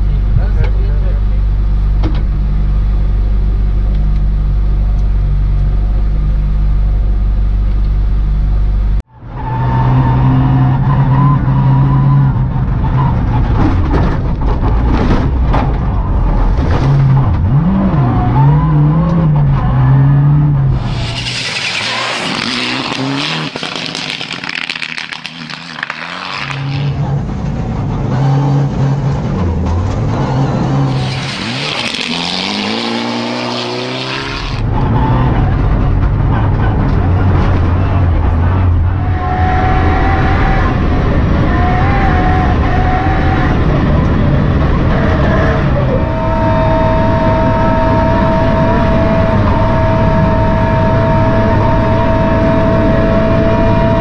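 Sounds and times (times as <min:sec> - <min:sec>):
steady low drone: 0:00.0 - 0:09.2
rally car engine revving: 0:00.0 - 0:54.0
tyres and snow rushing: 0:20.7 - 0:45.8.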